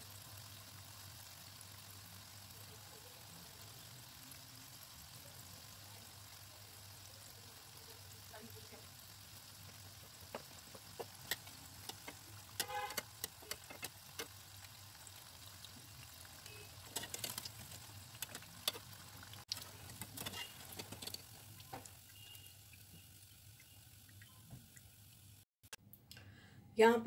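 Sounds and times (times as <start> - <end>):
food frying in hot oil: 0.0 - 25.5
skimmer clicking and scraping pan: 9.8 - 21.8.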